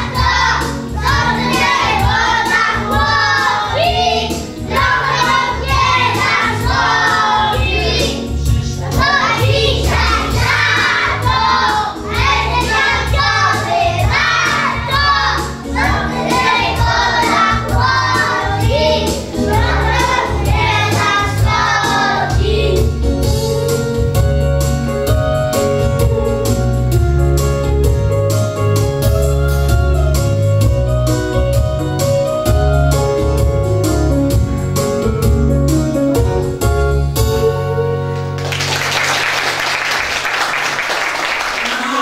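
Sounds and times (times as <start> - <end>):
small children singing: 0.0 - 23.7
backing music with steady beat: 0.0 - 38.4.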